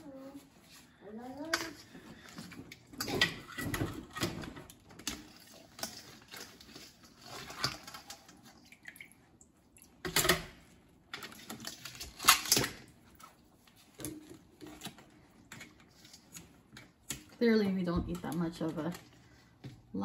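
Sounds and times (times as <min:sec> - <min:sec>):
water dripping and sloshing: 0:04.9 - 0:12.3.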